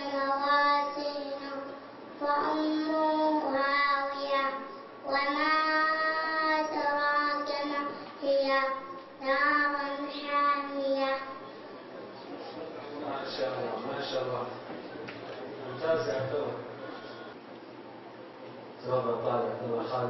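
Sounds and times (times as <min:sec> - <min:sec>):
boy chanting recitation: 0:00.0 - 0:11.4.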